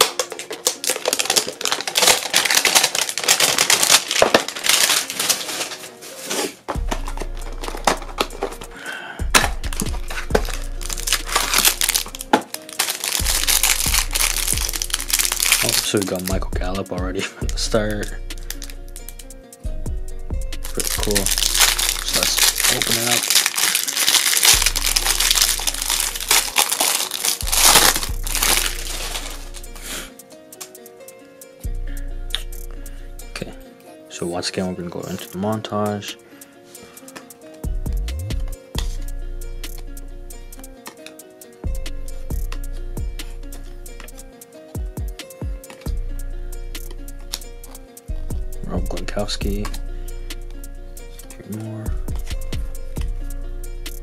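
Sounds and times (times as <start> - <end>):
trading cards rustling and clicking: 0.0 - 16.3, 20.6 - 29.8
plastic wrapping crinkling: 0.0 - 16.4, 18.4 - 18.8, 20.6 - 29.9
background music: 0.0 - 54.0
bass beat: 6.8 - 12.3, 13.2 - 23.0, 24.5 - 26.6, 27.4 - 29.8, 37.7 - 40.7, 41.6 - 44.2, 44.8 - 54.0.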